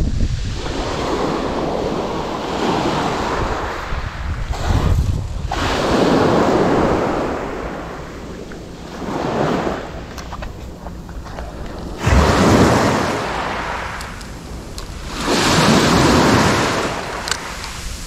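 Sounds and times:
wind buffeting microphone: 0.0 - 18.0
surf washing up gravel beach: 11.8 - 18.0.

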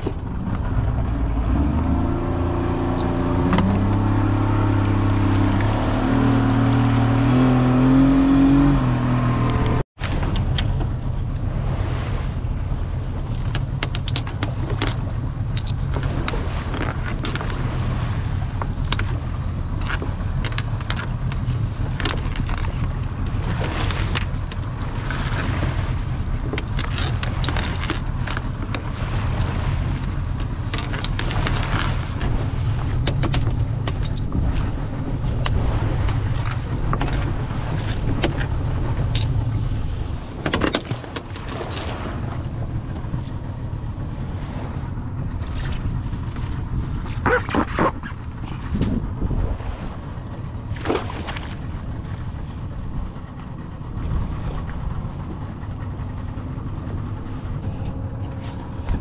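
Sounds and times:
boat engine droning: 0.0 - 59.0
knocks and clatter: 30.0 - 41.6.

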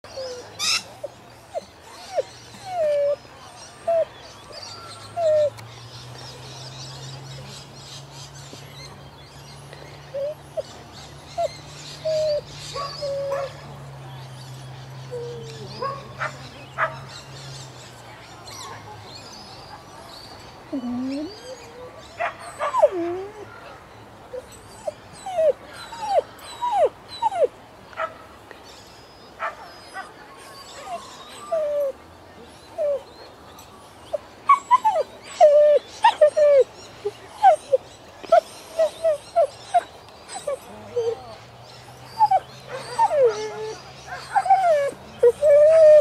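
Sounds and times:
dog whimpering: 1.5 - 3.2, 3.8 - 4.1, 5.1 - 5.5, 10.1 - 10.7, 11.4 - 13.5, 15.1 - 15.8, 22.7 - 23.5, 24.3 - 27.5, 30.6 - 31.9, 32.7 - 33.0, 34.1 - 41.4, 42.1 - 46.0.

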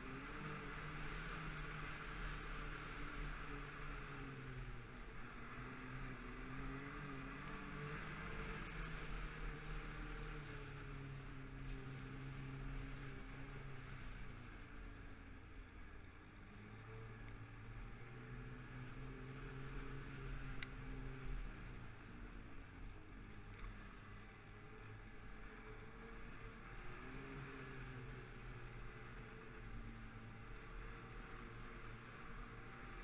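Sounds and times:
snowmobile engine running: 0.0 - 14.8, 15.6 - 33.0.

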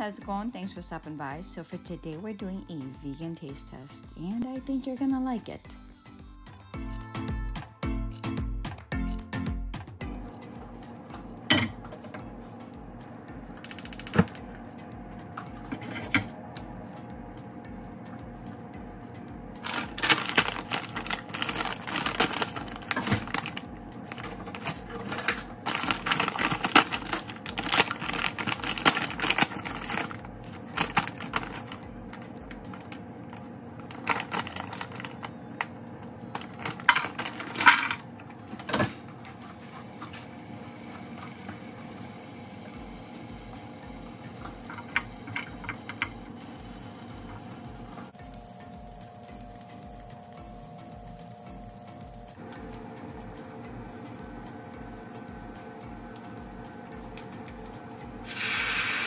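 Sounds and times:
plastic bag crinkling: 19.6 - 31.8, 32.5 - 35.4, 36.3 - 38.0.

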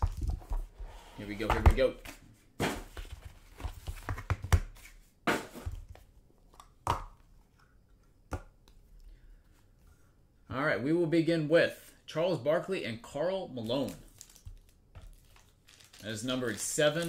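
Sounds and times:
wrapping rustling and crinkling: 13.6 - 17.0.

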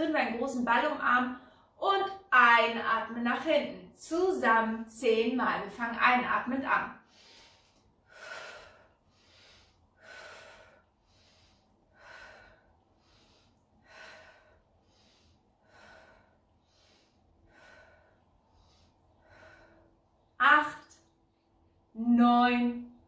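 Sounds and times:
woman breathing: 1.4 - 1.8, 7.0 - 20.4.

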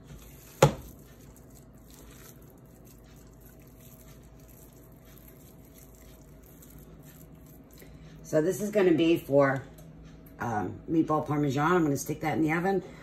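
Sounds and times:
squishing of raw meat: 0.0 - 8.2
low background hum: 0.0 - 13.0.

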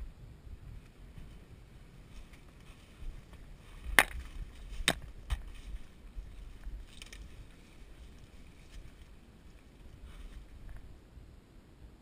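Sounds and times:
rustle of leaves and brush: 0.0 - 11.4
sharp cracks: 3.8 - 5.5.

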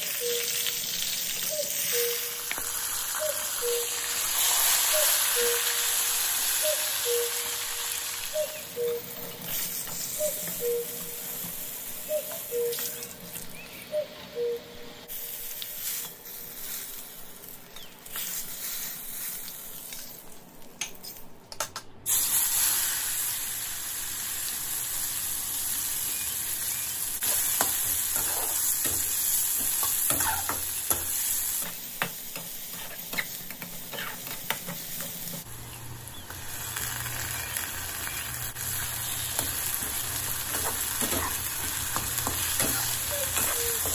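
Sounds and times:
oil sizzling in a frying pan: 0.0 - 8.5, 22.1 - 33.4, 34.8 - 43.9.

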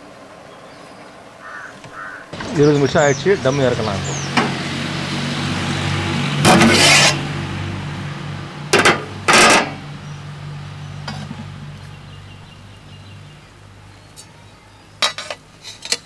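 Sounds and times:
metal lid scraping pot rim: 6.5 - 7.2.

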